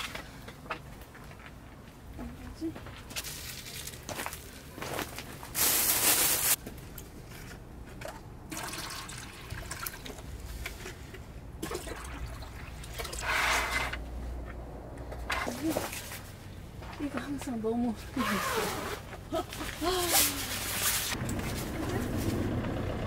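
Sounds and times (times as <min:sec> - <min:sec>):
water pouring into a jug: 0:08.5 - 0:10.3, 0:11.6 - 0:13.6.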